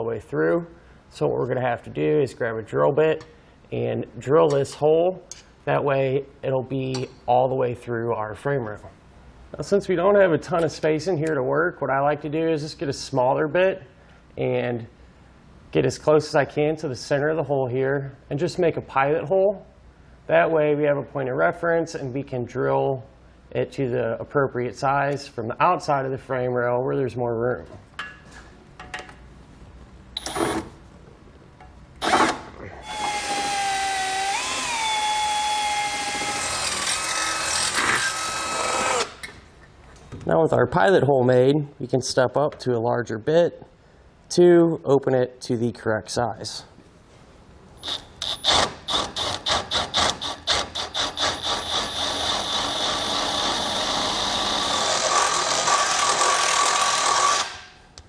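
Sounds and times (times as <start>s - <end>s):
cordless drill whining: 32.0s - 39.2s, 51.0s - 57.6s.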